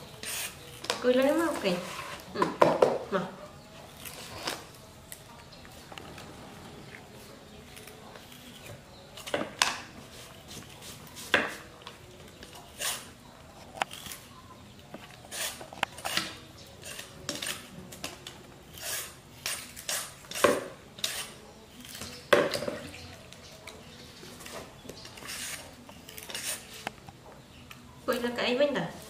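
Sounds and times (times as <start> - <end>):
peeler scraping fruit skin: 0.0 - 2.3, 3.8 - 5.2, 7.0 - 11.8, 12.4 - 22.4, 23.3 - 27.0.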